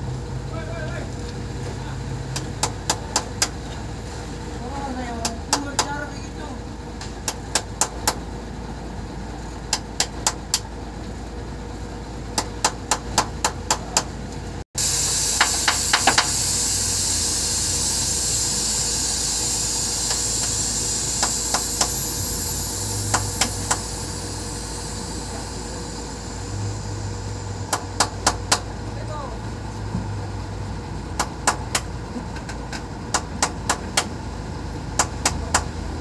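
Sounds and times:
loud steady hiss: 12.4s - 36.0s
tool blows on metal: 14.8s - 28.7s.

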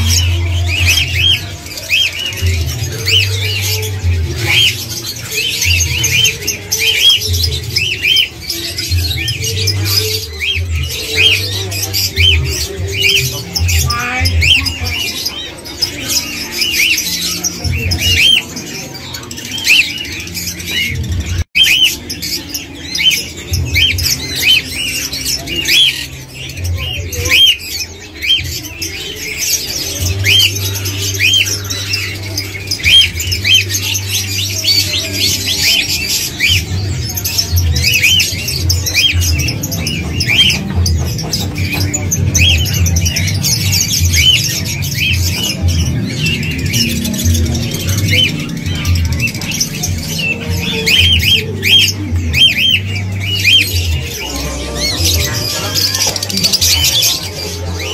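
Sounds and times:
background music with bass: 0.0s - 57.9s
parakeets chirping and squawking: 0.0s - 57.9s.

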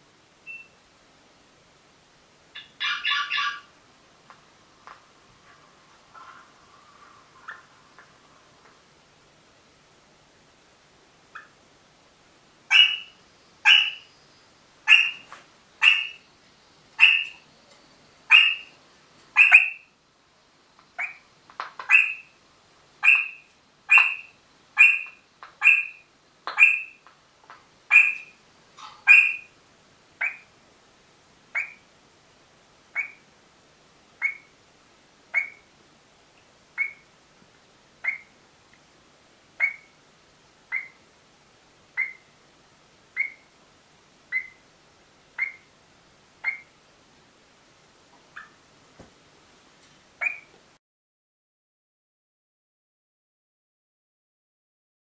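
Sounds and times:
parrot short sharp calls: 35.4s - 35.6s.

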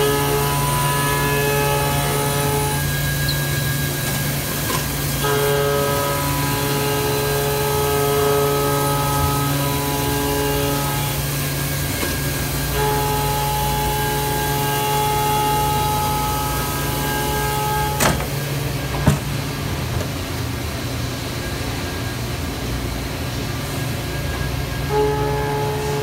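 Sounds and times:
machining spindle whine: 0.0s - 19.0s
coolant hiss and low hum: 0.0s - 26.0s.

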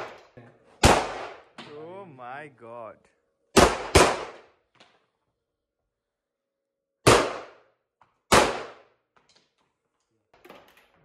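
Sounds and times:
pistol shots with echo: 0.8s - 1.6s, 3.5s - 4.6s, 7.0s - 9.0s.

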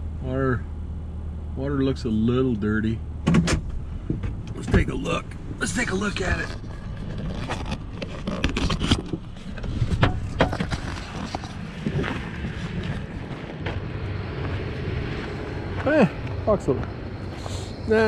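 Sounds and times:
steady low rumble: 0.0s - 18.0s
truck door clicks and knocks: 3.2s - 4.4s
footsteps crunching on gravel: 10.5s - 16.0s.

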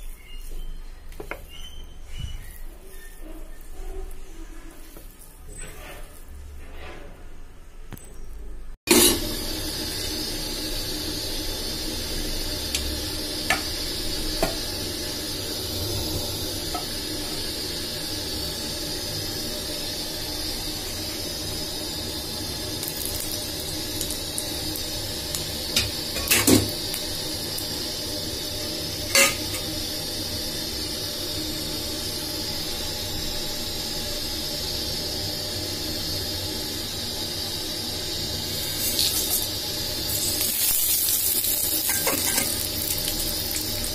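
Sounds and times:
oil hissing in a frying pan: 8.9s - 43.9s.

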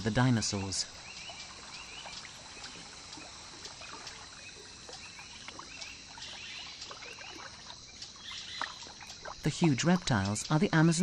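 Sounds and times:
high insect hum: 0.0s - 11.0s.

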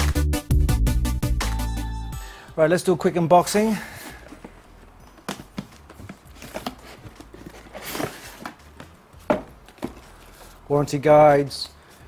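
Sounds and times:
cardboard rustle: 3.9s - 10.6s
cardboard knocks and scrapes: 4.0s - 10.5s.

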